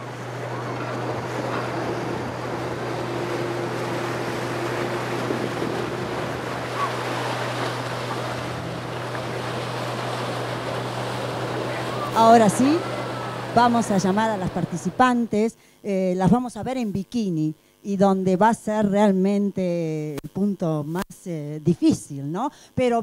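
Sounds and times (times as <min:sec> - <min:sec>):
low hum: 0:00.0 - 0:15.7.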